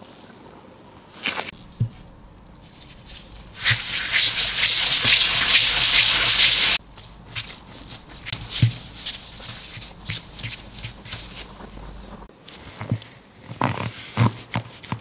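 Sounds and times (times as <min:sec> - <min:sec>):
gloved hand rubbing pastry mat: 0:01.2 - 0:12.9
dough ball thud: 0:01.6 - 0:02.4, 0:07.3 - 0:12.2.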